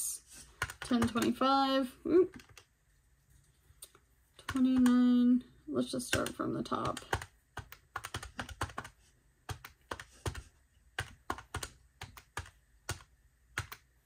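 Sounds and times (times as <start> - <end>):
calculator keys pressed: 6.1 - 13.9.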